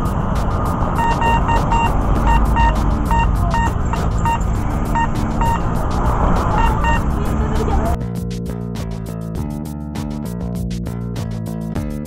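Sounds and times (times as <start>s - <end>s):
wind: 0.0s - 8.0s
road rumble: 0.0s - 9.2s
electric scooter horn beeping: 1.0s - 5.7s, 6.6s - 7.2s.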